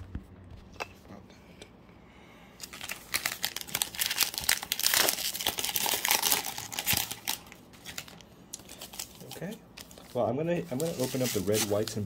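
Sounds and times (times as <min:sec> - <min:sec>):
foil wrapper crinkling: 0:02.6 - 0:12.0.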